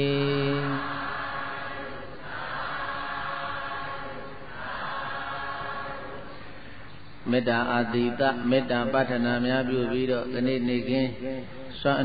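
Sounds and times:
group of voices chanting: 0:00.7 - 0:06.6.

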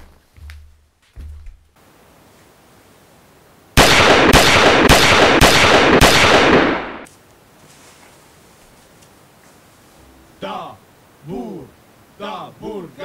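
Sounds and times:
pistol shots with echo: 0:03.8 - 0:07.1.

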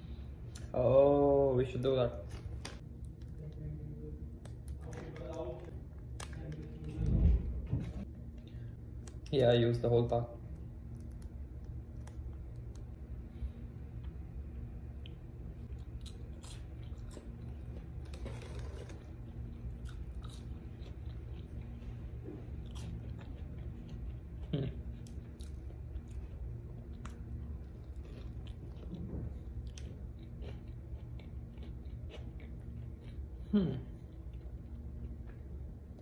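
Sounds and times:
crunchy chewing and biting: 0:15.0 - 0:35.6.

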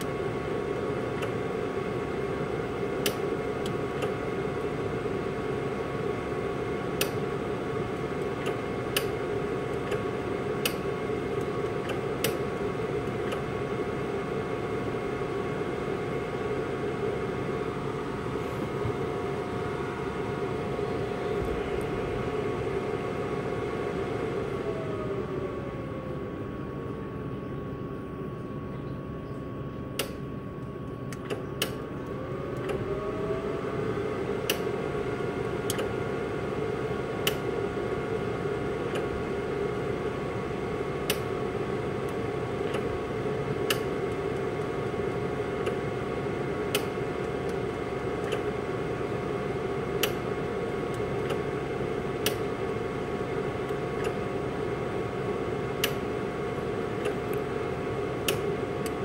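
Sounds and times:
machine hum with sliding tone: 0:00.0 - 0:59.0
laser welder clicks: 0:00.8 - 0:01.4, 0:03.0 - 0:04.2, 0:07.0 - 0:07.3, 0:08.1 - 0:13.5, 0:30.0 - 0:30.2, 0:31.1 - 0:31.9, 0:32.5 - 0:32.9, 0:34.4 - 0:34.7, 0:35.6 - 0:36.0, 0:37.2 - 0:37.5, 0:41.0 - 0:41.3, 0:42.0 - 0:42.9, 0:43.6 - 0:44.8, 0:46.7 - 0:47.6, 0:48.2 - 0:48.5, 0:50.0 - 0:51.5, 0:52.2 - 0:52.8, 0:53.6 - 0:54.2, 0:55.8 - 0:56.1, 0:57.0 - 0:57.5, 0:58.2 - 0:59.0.

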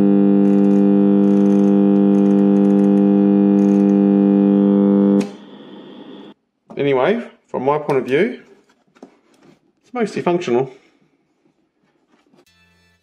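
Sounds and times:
alarm clock buzzer: 0:00.0 - 0:05.2.

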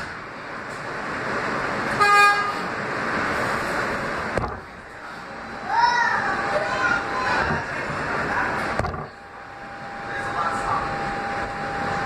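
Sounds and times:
subway train wheel and track noise: 0:00.0 - 0:12.0
train horn blast: 0:01.9 - 0:02.8.

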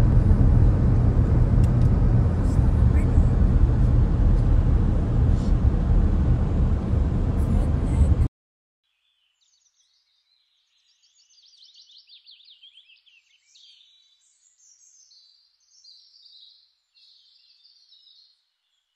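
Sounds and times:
faint birdsong chirps and trills: 0:08.8 - 0:18.9.

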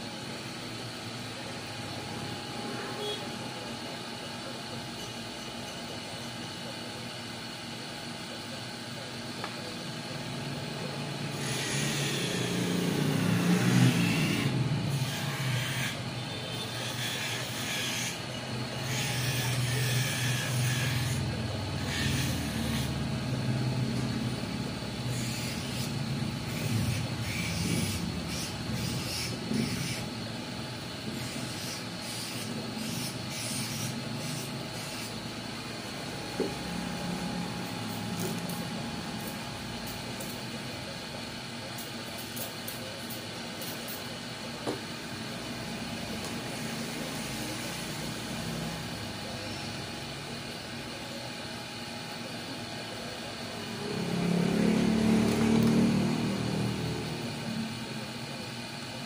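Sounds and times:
motor hum: 0:09.4 - 0:40.7.

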